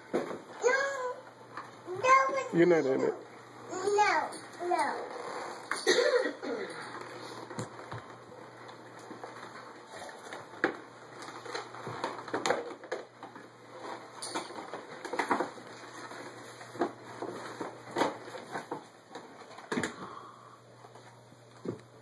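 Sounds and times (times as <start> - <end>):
wrapping paper crinkling: 7.1 - 19.7.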